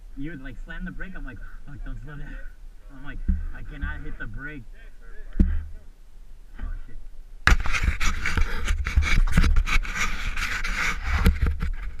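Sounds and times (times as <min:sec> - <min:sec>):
scraping and rustling on microphone: 0:06.6 - 0:12.0.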